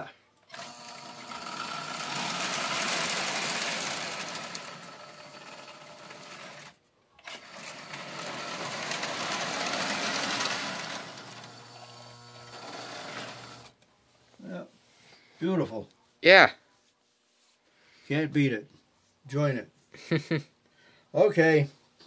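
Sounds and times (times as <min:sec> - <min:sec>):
toy electric train whirring: 0:00.5 - 0:13.8.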